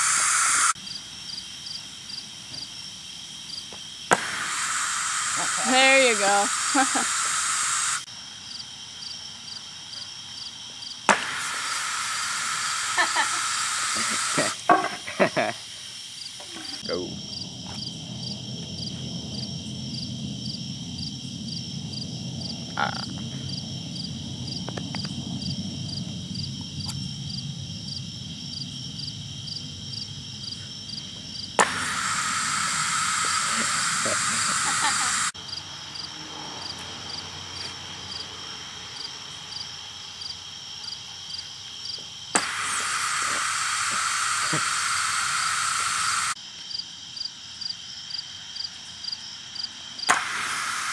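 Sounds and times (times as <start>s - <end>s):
compressed air pop and hiss: 0.0s - 0.8s, 3.7s - 8.1s, 11.0s - 15.0s, 31.6s - 35.3s, 42.3s - 46.4s, 50.0s - 50.9s
night insect chorus: 0.0s - 50.9s.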